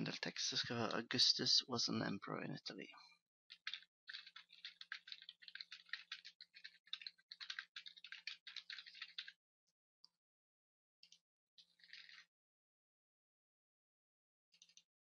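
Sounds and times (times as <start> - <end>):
keyboard typing: 3.5 - 9.4, 11.0 - 12.3, 14.6 - 14.8.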